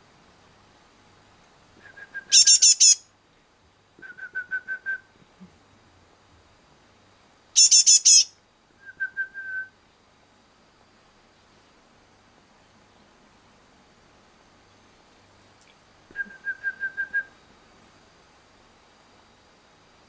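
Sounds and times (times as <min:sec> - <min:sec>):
bird high squeaky calls: 0:02.3 - 0:03.0, 0:07.6 - 0:08.3.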